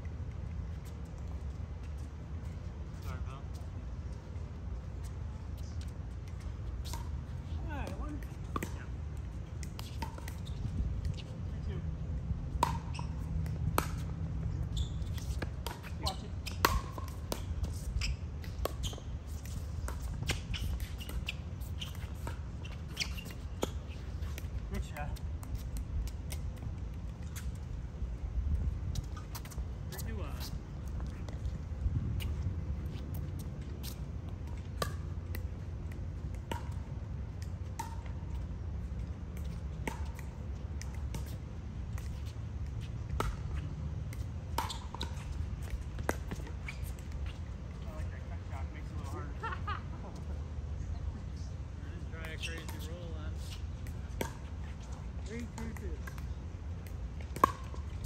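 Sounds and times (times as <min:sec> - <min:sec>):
shoe scuffs and squeaks: 0:09.8 - 0:11.8, 0:12.8 - 0:25.1, 0:44.6 - 0:48.1.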